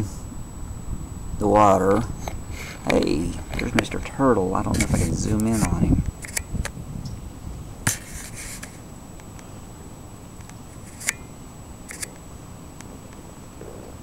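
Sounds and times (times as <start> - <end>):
faint high whine: 0.0 - 14.0
low steady rumble: 0.0 - 14.0
zoom motor whir: 10.8 - 12.2
camera zoom clicks: 11.9 - 12.2.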